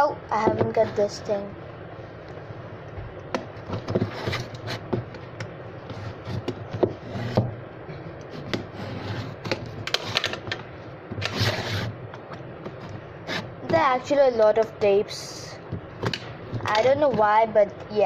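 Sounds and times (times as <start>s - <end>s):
scratchy rasp on box: 3.8s - 4.9s, 8.4s - 10.2s, 11.2s - 12.0s, 12.8s - 13.5s.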